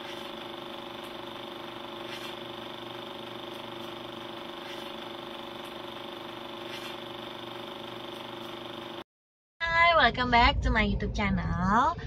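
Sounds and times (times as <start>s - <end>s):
film projector whirring: 0.0s - 9.0s.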